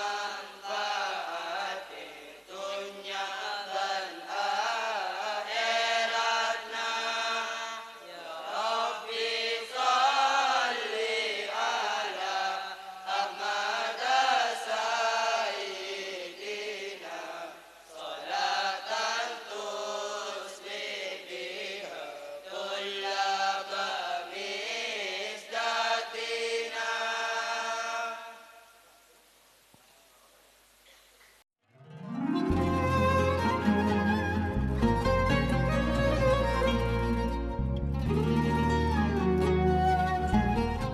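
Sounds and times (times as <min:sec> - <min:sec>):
boys chanting in unison: 0:00.0 - 0:28.6.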